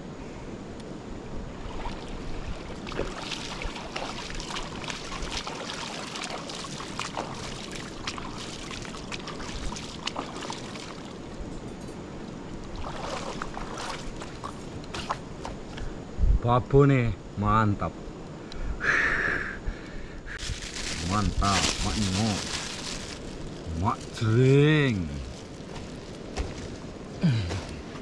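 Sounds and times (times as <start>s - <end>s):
stream running water: 1.4s - 15.9s, 20.4s - 28.0s.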